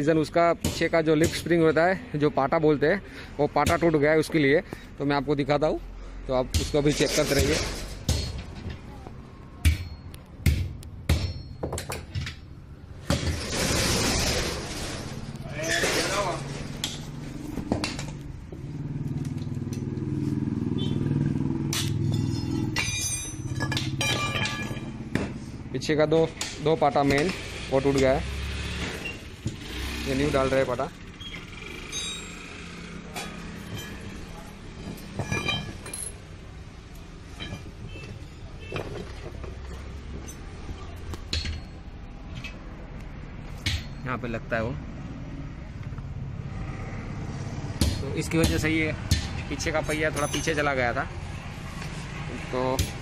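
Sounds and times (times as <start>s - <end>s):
metallic clinks: 21.8s - 25.0s, 31.8s - 36.3s, 49.7s - 50.8s.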